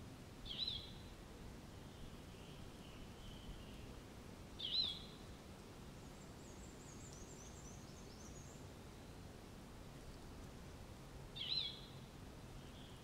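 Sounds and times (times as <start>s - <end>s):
faint outdoor background: 0.0s - 13.0s
bird chirping: 0.4s - 1.1s, 1.7s - 3.9s, 4.6s - 5.2s, 6.2s - 9.2s, 11.4s - 12.0s.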